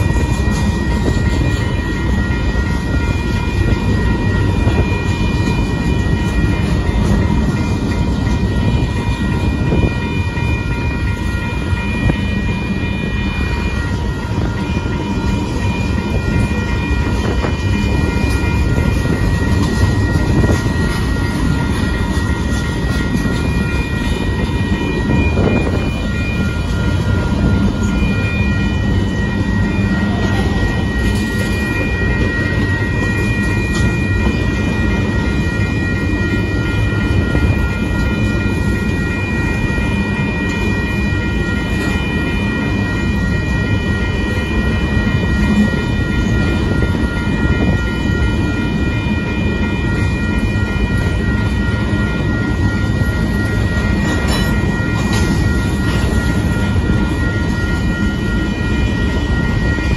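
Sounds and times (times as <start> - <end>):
high ringing tones: 0.0 - 59.9
train wheels rumbling on track: 0.0 - 59.9.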